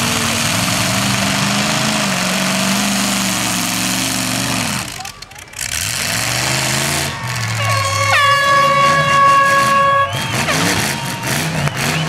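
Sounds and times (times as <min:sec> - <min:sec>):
car engines revving: 0:00.0 - 0:12.0
air horn blast: 0:07.6 - 0:11.3.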